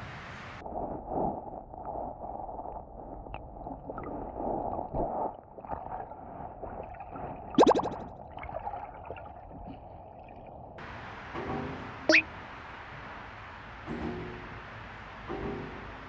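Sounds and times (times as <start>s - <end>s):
muffled underwater water gurgling: 0.6s - 10.8s.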